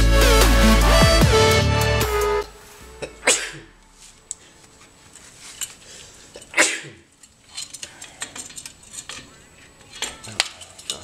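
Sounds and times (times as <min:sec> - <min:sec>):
small metal clicks and taps: 0:07.2 - 0:11.0.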